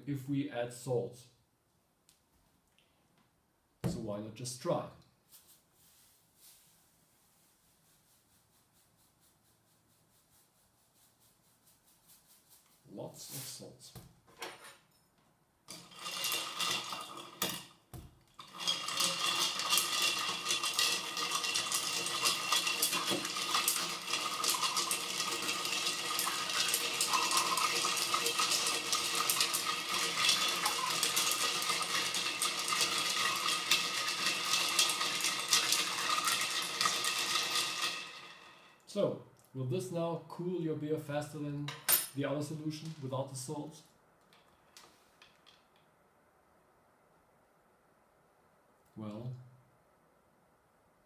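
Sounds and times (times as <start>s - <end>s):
ice clinking in glass beaker: 15.8s - 17.6s, 18.4s - 38.8s.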